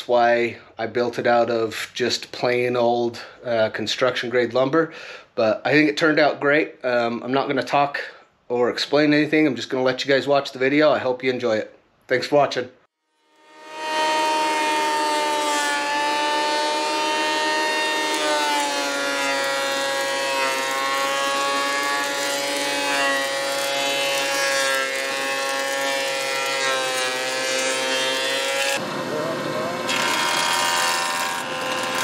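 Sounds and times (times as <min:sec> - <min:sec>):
thickness planer motor whine: 0:13.3 - 0:32.0.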